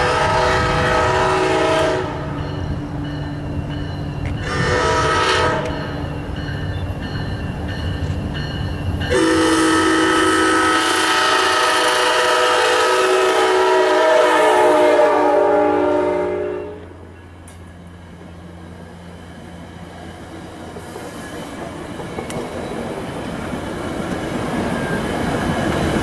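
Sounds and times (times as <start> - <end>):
train air horn blasts: 0.0 - 2.4, 4.4 - 5.9, 9.1 - 17.0.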